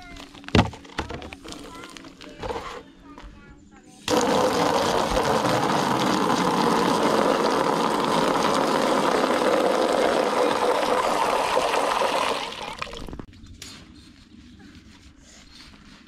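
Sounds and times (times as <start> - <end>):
water pouring into a tub: 4.1 - 13.3.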